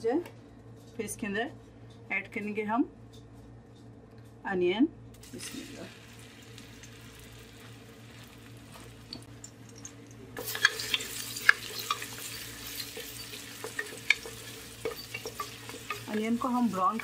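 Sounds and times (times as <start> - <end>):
onions sizzling in oil: 5.2 - 9.4, 10.4 - 17.0
spatula scraping pot: 10.4 - 17.0.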